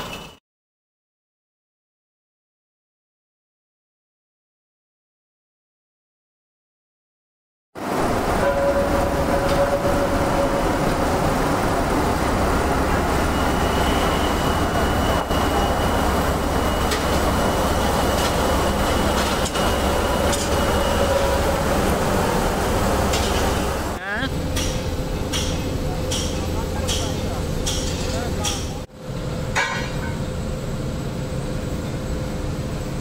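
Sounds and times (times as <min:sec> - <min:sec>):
machinery hum: 0:07.8 - 0:33.0
heavy machinery din: 0:07.9 - 0:33.0
high machine whine: 0:07.9 - 0:33.0.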